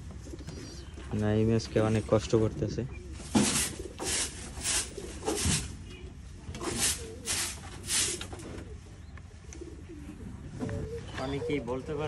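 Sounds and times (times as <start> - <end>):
pigeons cooing: 0.0 - 1.1, 2.6 - 12.0
scraper rasping across wooden floor: 3.4 - 5.7.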